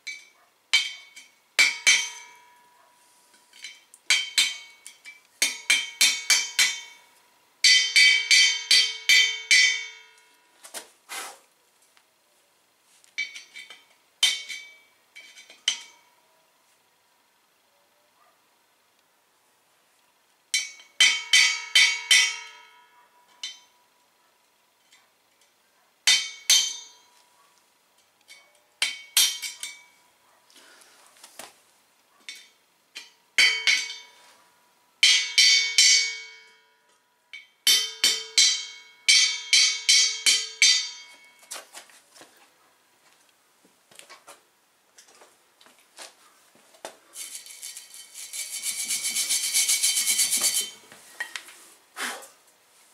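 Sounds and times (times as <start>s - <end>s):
hammer striking metal bottle: 3.6s - 7.0s, 32.3s - 34.2s
file rasping on metal: 47.2s - 50.8s.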